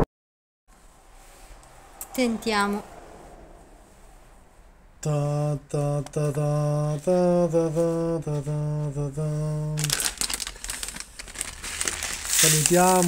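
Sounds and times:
man humming: 0:05.0 - 0:09.9
crinkling rustle: 0:09.8 - 0:13.0.

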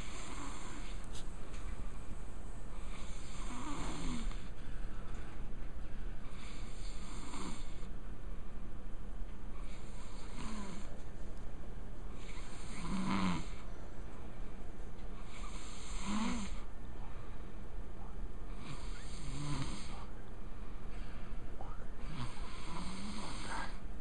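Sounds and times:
man snoring: 0:00.0 - 0:01.0, 0:02.8 - 0:04.5, 0:06.3 - 0:07.9, 0:09.6 - 0:10.9, 0:12.2 - 0:13.6, 0:15.2 - 0:16.7, 0:18.5 - 0:20.1, 0:22.0 - 0:23.8.

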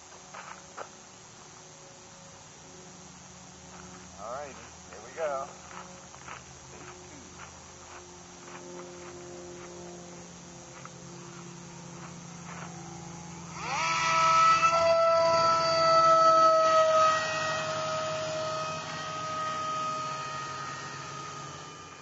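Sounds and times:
electric motor and propeller whine: 0:00.0 - 0:22.0.

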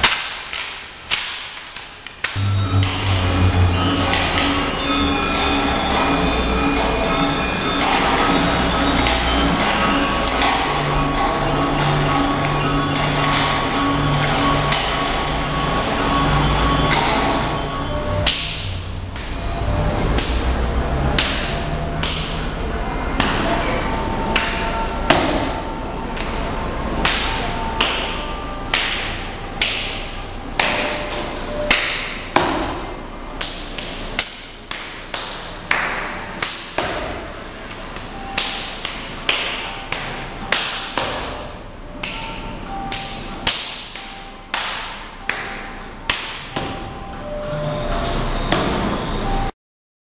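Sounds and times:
sharp percussive hits: 0:00.0 - 0:49.1
faint held notes: 0:02.4 - 0:32.3.

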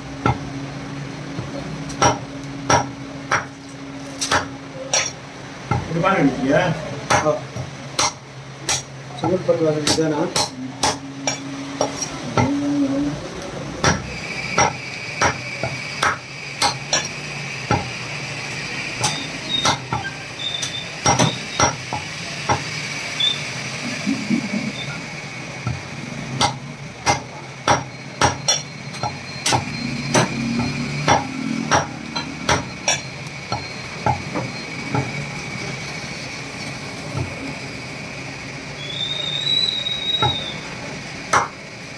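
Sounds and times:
cleaver chopping bone on wood: 0:01.4 - 0:03.5, 0:04.2 - 0:05.1, 0:07.0 - 0:12.6, 0:13.8 - 0:17.1, 0:17.7 - 0:17.9, 0:19.0 - 0:20.1, 0:21.0 - 0:22.7, 0:26.4 - 0:35.1, 0:41.3 - 0:41.6.

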